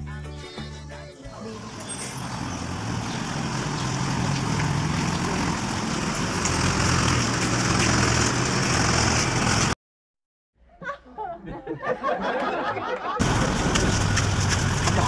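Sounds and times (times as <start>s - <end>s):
bus engine idling: 1.3s - 9.7s, 13.2s - 15.0s.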